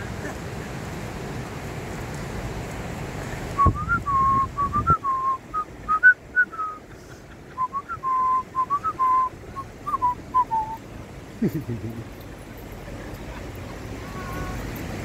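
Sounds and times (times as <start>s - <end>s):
person whistling a tune: 3.6s - 6.8s, 7.6s - 10.8s.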